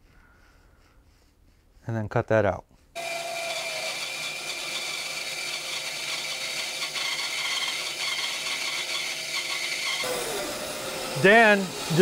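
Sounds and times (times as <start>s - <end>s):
bandsaw cutting wood: 3.0s - 12.0s.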